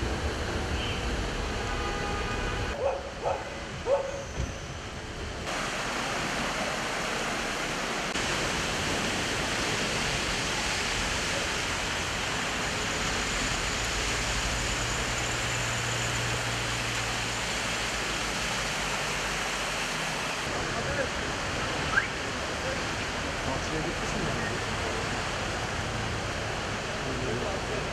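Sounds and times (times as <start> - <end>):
floodwater rushing across street: 4.8 - 27.9.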